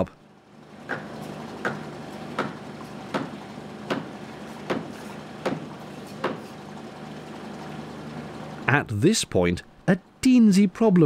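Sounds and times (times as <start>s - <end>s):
engine hum: 0.0s - 11.0s
hammer blows on wooden chocks: 0.9s - 6.6s.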